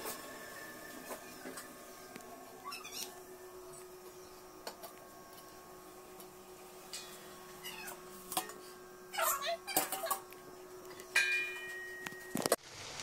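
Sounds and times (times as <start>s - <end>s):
steel kitchenware clinking: 11.1s - 12.3s.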